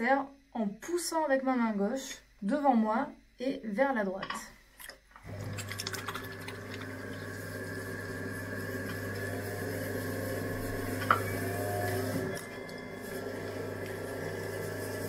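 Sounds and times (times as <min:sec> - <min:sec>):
potter's wheel motor humming: 0:05.2 - 0:15.0.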